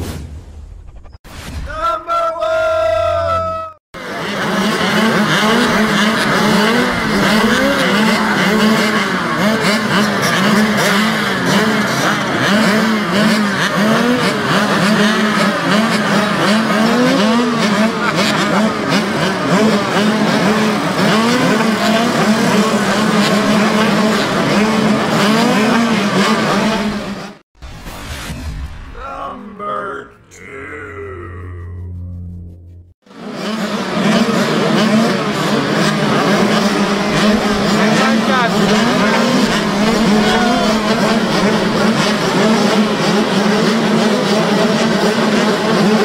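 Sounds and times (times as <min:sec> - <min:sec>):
dirt bikes idling and revving: 0:04.0 - 0:27.4, 0:33.1 - 0:46.0.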